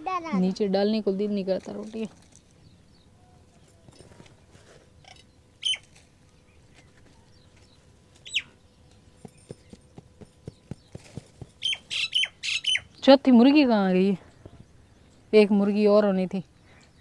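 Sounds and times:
farmyard birds calling: 2.6 - 13.4.

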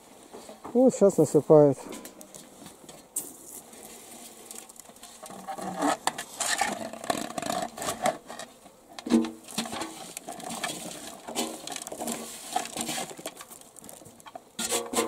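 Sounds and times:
beetles pattering on plastic: 2.1 - 15.0
metal basin scraping: 5.2 - 13.4, 14.6 - 15.0.

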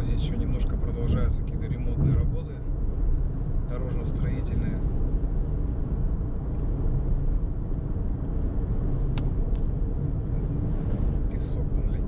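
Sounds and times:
car tyre and engine rumble: 0.0 - 12.0.

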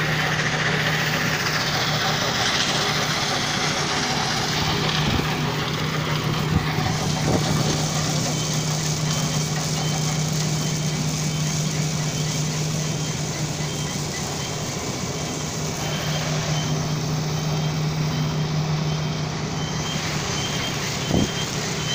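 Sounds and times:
crushed stone on conveyors hissing: 0.0 - 21.9
stone crushing machinery drone: 0.0 - 21.9
faint short high beeps: 8.2 - 21.9.

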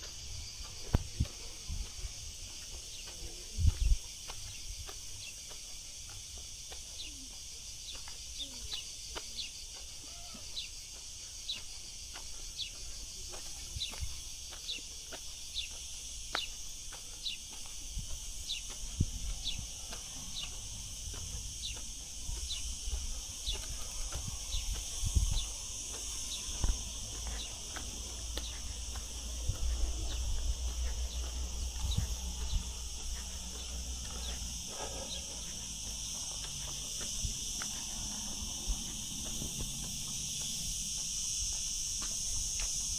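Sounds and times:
insects buzzing: 0.0 - 42.9.

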